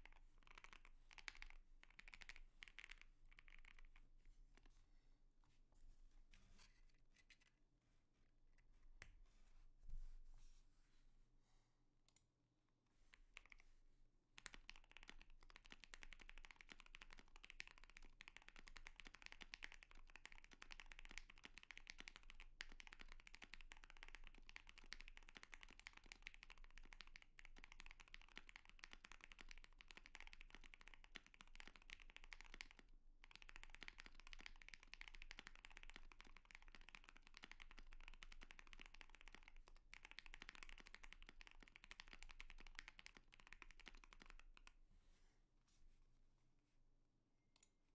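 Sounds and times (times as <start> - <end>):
mechanical keyboard typing: 0.1 - 3.9, 14.4 - 44.7.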